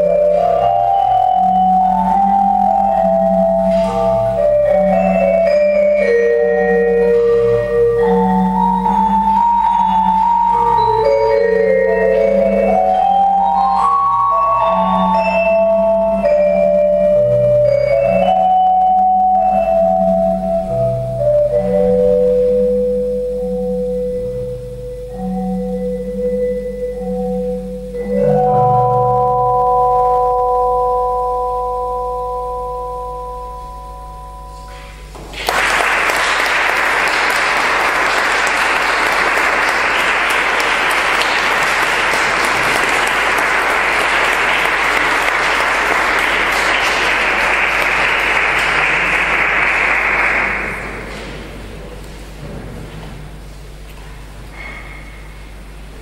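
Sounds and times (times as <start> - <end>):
live instrumental music chord: 0.0 - 54.5
audience applause: 35.2 - 51.1.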